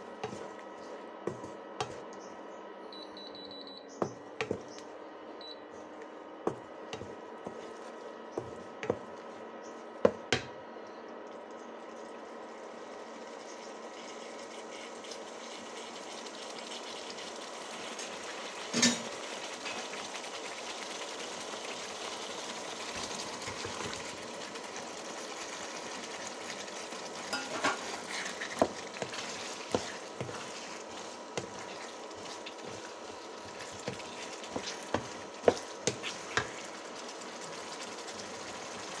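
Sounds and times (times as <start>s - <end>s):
wooden spatula knocking pan: 4.0s - 4.7s, 8.4s - 9.1s
sauce sizzling in frying pan: 12.2s - 39.0s
spatula scraping pan: 27.3s - 36.7s.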